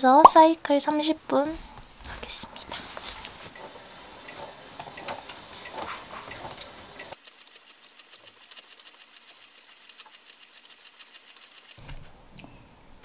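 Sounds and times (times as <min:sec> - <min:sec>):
exercise bike flywheel ticking: 0:03.6 - 0:11.8.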